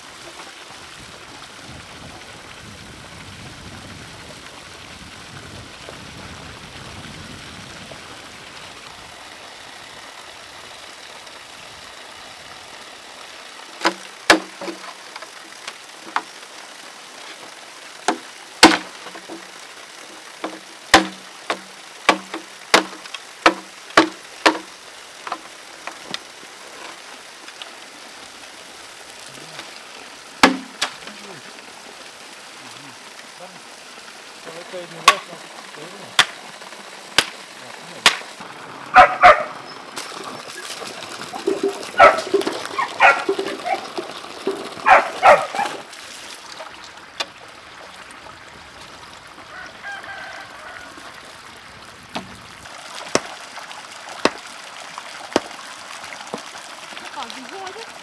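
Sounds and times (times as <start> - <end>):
water splashing from a hose: 0.0 - 58.0
blade knocking bamboo pipe: 13.8 - 14.8, 18.1 - 19.4, 20.4 - 25.4, 30.4 - 30.9.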